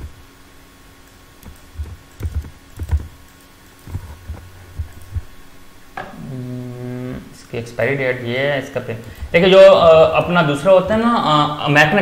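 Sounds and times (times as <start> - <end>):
faint hum: 0.0 - 12.0
mouse clicking: 1.0 - 5.3
keyboard typing: 1.1 - 5.3.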